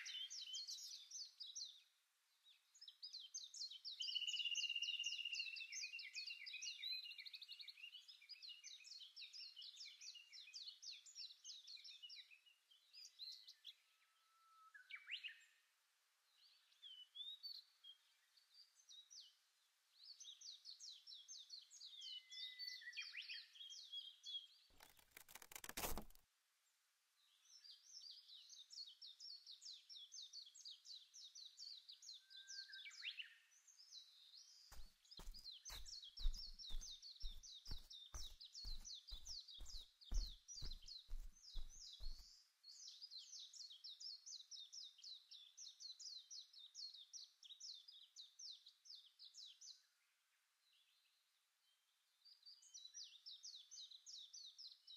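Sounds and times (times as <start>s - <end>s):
birds twittering: 34.6s - 42.4s.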